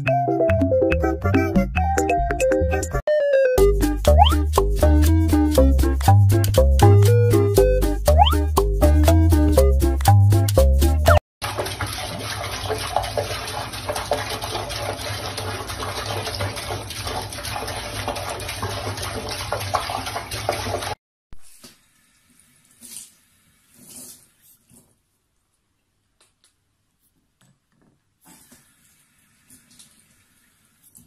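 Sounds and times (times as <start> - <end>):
faint water splashes: 11.4 - 21.0
tap water running into sink: 11.4 - 21.0.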